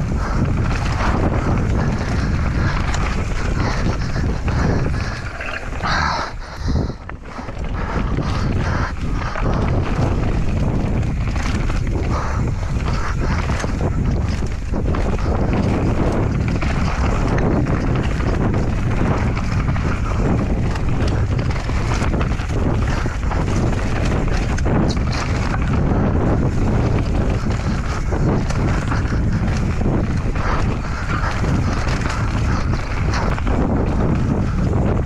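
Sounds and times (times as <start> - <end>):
bike tyres rumbling on trail: 0.0 - 35.0
wind buffeting microphone: 0.0 - 35.0
bike knocks and rattles: 7.2 - 35.0.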